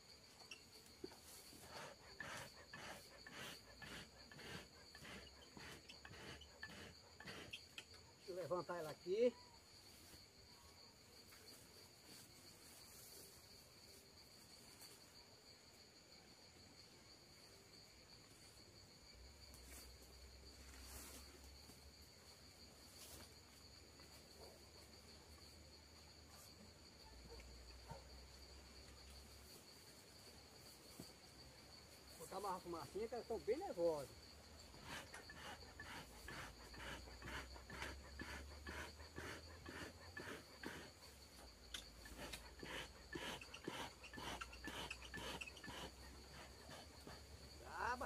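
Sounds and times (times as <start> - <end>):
insect trill: 0.0 - 48.0
high-pitched insect chirring: 0.2 - 1.4, 41.6 - 46.3.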